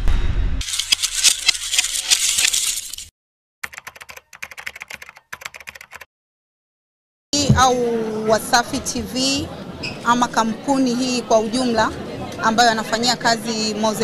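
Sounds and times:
keyboard typing clicks: 3.6 - 6.1.

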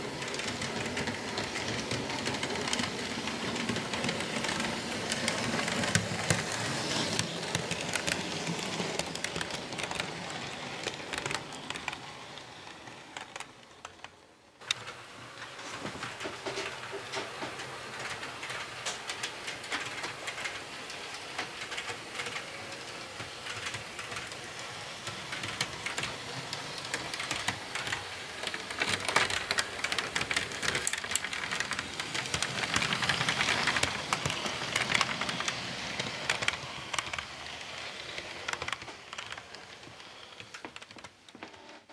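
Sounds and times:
model train wheel clicks: 0.2 - 10.1, 17.6 - 37.3.

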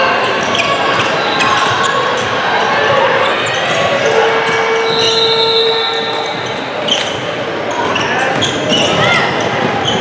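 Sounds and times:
crowd and court din: 0.0 - 10.0.

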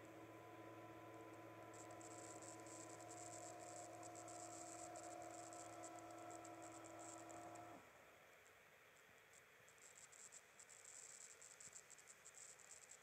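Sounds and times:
motor humming: 0.0 - 7.8.

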